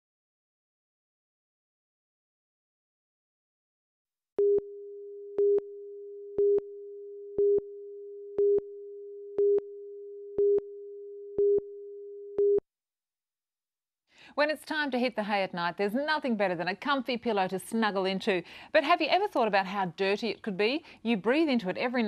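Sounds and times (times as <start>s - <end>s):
steady single-pitch tone: 4.4s - 12.6s.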